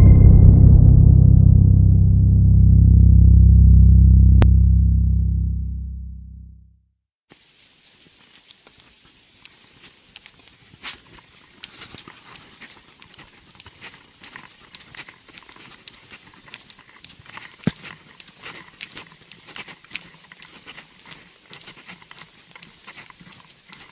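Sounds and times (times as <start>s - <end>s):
intro music: 0.0s - 6.7s
faint hiss: 7.3s - 23.9s
footsteps on paved road: 8.8s - 23.9s.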